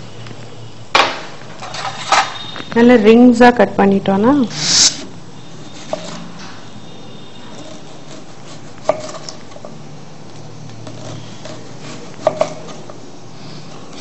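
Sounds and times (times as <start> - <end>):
knife slicing vegetables: 4.5 - 6.3, 7.5 - 9.7, 10.8 - 13.0.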